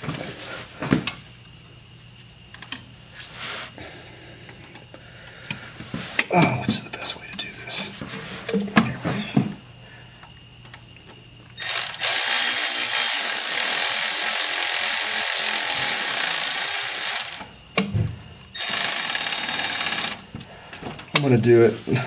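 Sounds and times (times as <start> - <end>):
handheld power driver running: 11.6 - 17.6, 18.6 - 20.3.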